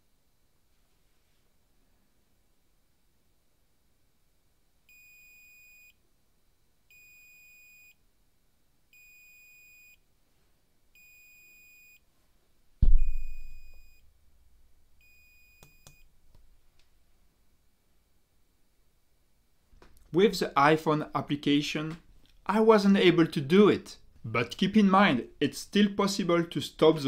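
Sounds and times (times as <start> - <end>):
loud thump: 12.8 - 13.9
muffled buzzer beeping: 12.9 - 14.0.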